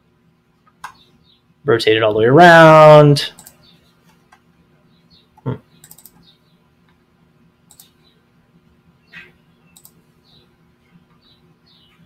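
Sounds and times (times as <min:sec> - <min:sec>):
faint steady hum: 0:00.0 - 0:12.0
computer mouse clicking: 0:03.4 - 0:04.4, 0:05.8 - 0:06.3, 0:07.7 - 0:08.0, 0:09.8 - 0:10.0.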